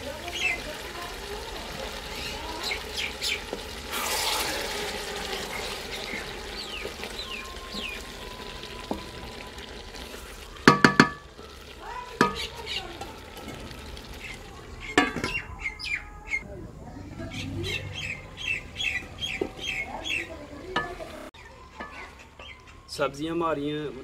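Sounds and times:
birds chirping: 0:00.0 - 0:04.4, 0:05.2 - 0:24.0
vegetables sizzling in a pot: 0:00.0 - 0:15.9, 0:17.4 - 0:24.0
wooden spatula stirring: 0:00.2 - 0:15.2
loud ringing clanks from pot: 0:10.6 - 0:11.5, 0:12.2 - 0:12.5, 0:15.0 - 0:15.4.

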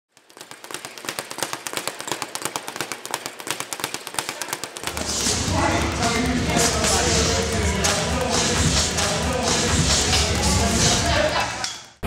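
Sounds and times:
rapid sharp taps: 0:00.1 - 0:07.2
music with low bass: 0:04.9 - 0:11.6.

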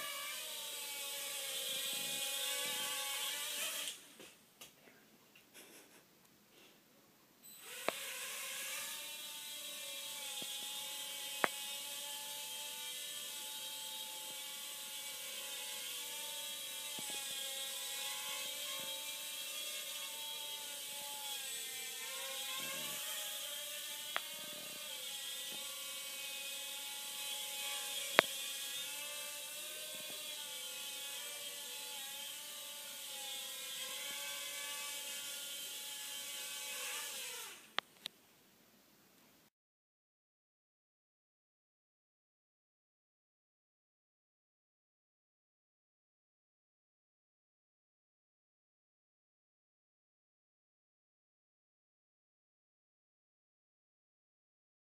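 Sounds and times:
quadcopter motors whining: 0:00.0 - 0:04.0, 0:07.5 - 0:37.7.

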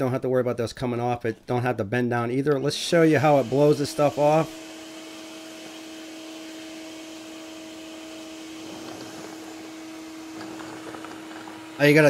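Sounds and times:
shop vac blowing air: 0:02.5 - 0:12.0.

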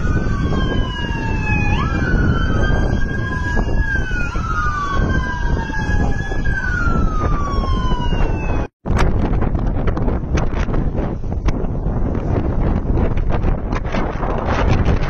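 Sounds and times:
passing traffic: 0:00.0 - 0:08.7
siren wailing: 0:00.0 - 0:08.7
wind rumble: 0:00.0 - 0:15.0.

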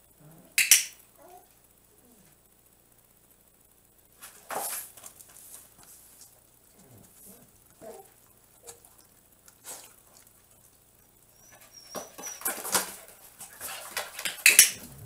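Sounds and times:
dog paws scraping cardboard: 0:04.2 - 0:09.0, 0:11.4 - 0:14.4.

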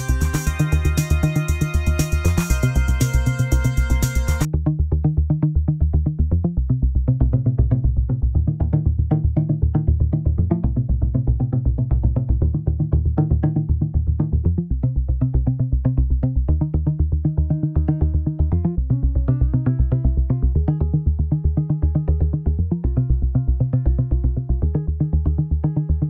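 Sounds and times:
pulsing synth bass: 0:00.0 - 0:26.0.

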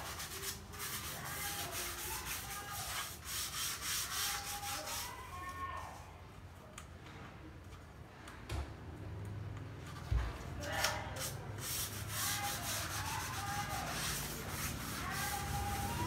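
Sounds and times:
hand rubbing wooden floorboard: 0:00.0 - 0:05.2, 0:10.8 - 0:16.0.

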